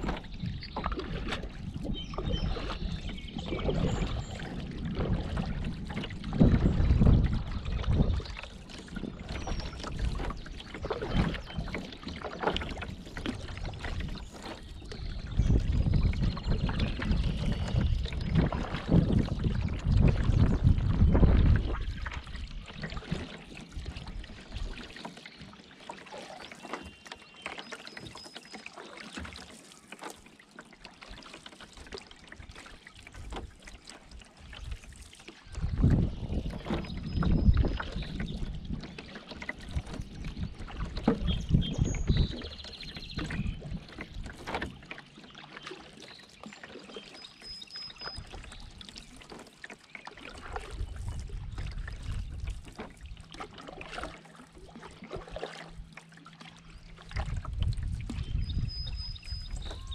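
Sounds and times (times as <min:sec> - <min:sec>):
paddle strokes in water: 0:00.0 - 0:59.9
birdsong calls: 0:40.1 - 0:44.1, 0:45.1 - 0:48.8, 0:58.3 - 0:59.9.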